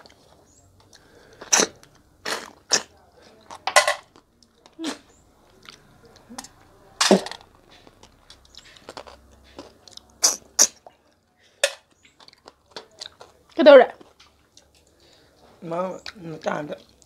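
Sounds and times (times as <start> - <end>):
quiet chewing: 0.0 - 17.0.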